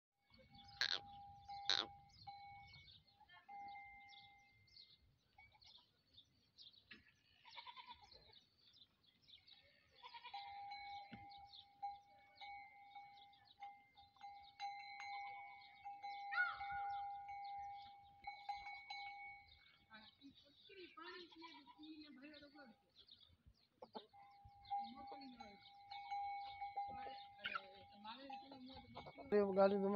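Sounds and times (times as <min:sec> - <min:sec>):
goat bleating: 0:00.7 - 0:01.1, 0:01.7 - 0:01.9, 0:07.3 - 0:08.2, 0:09.9 - 0:10.5, 0:21.1 - 0:22.0.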